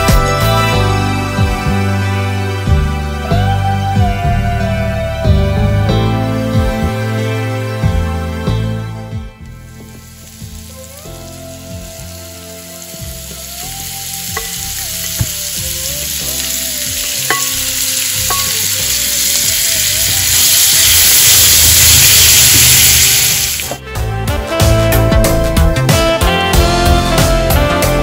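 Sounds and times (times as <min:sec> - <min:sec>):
meat sizzling in hot oil: 0:09.8 - 0:23.8.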